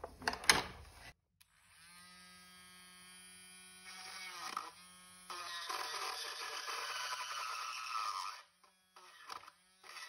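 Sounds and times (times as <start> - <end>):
rotary tool motor whine: 1.4 - 10.0
rotary tool grinding plastic: 3.8 - 10.0.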